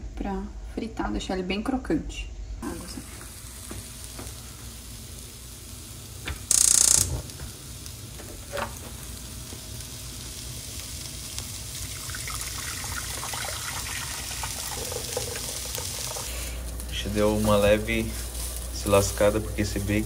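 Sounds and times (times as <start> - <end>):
bacon sizzling in a wok: 2.6 - 20.0
small ticks from pan: 6.2 - 7.2.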